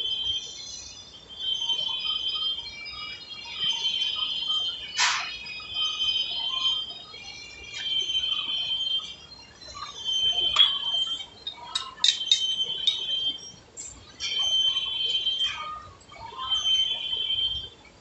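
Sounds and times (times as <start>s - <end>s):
metallic lathe squeal: 9.5s - 17.4s
sharp metal clinks: 10.6s - 13.1s.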